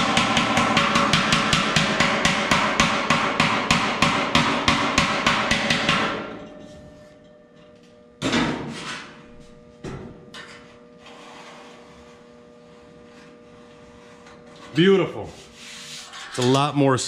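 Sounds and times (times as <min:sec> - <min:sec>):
knocks on metal: 0:00.0 - 0:06.3
hammer striking sheet steel: 0:00.0 - 0:07.3
hand rubbing along metal: 0:15.2 - 0:16.6.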